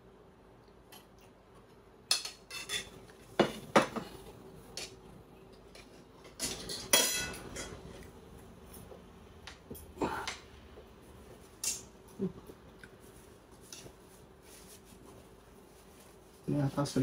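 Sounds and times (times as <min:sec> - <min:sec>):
utensils clinking on plates: 0:02.1 - 0:05.0, 0:05.7 - 0:08.1.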